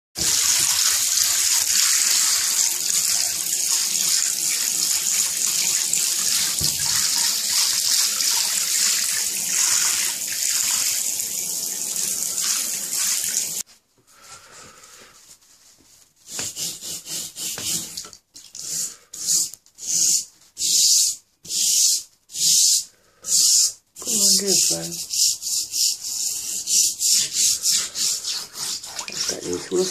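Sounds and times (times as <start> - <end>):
tap water running into a bathtub: 0.2 - 13.6, 16.3 - 20.2, 24.0 - 29.9
scrub brush rubbing wet scales: 0.2 - 13.7, 15.3 - 29.9.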